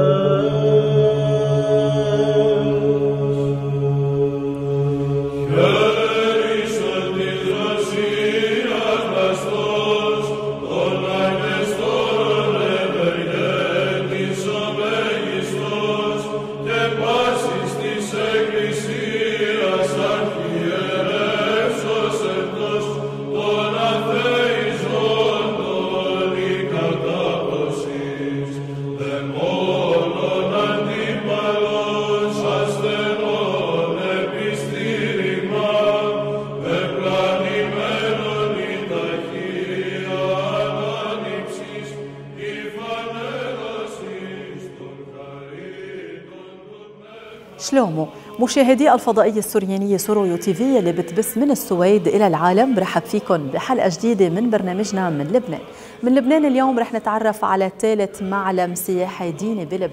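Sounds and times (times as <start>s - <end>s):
steady low drone: 0.0s - 46.1s
chanted vocal music: 0.0s - 59.9s.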